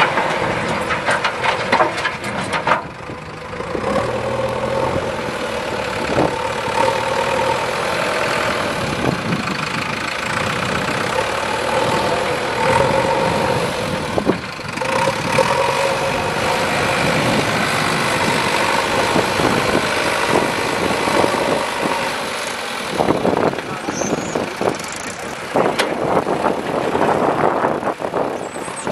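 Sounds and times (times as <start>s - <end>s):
backhoe diesel engine running: 0.0s - 28.9s.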